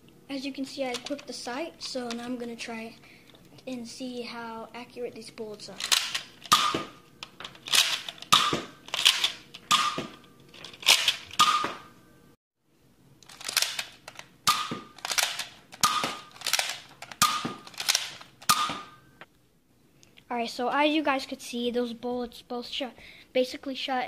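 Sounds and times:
toy dart blaster firing: 6.5 - 7.0, 8.3 - 8.8, 9.7 - 10.1, 11.4 - 11.8, 14.5 - 19.0.

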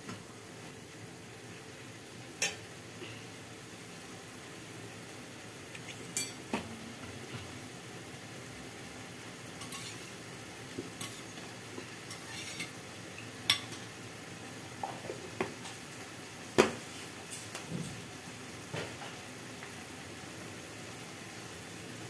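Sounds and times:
low sizzle of frying: 0.0 - 22.0.

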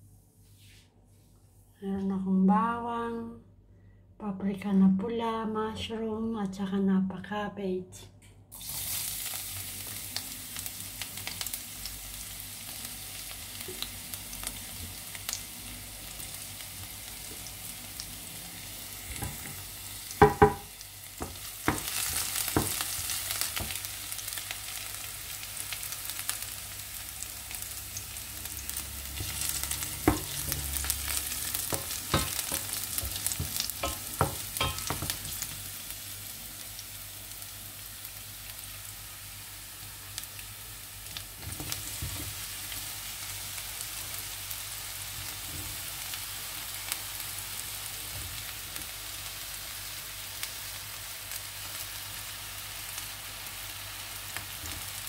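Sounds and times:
garlic sizzling in oil: 8.5 - 55.0
ringing knocks on pan: 20.2 - 20.7.

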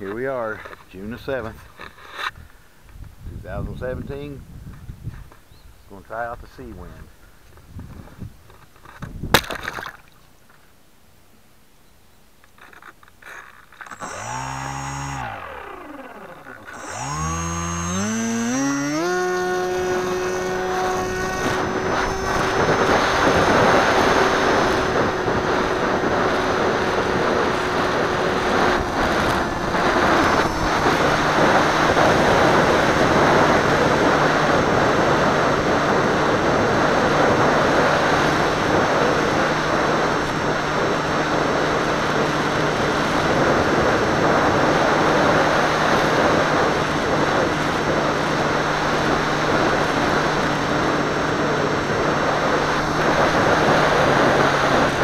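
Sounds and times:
model plane motor whine: 13.4 - 55.0
rush of water and wind: 13.9 - 55.0.

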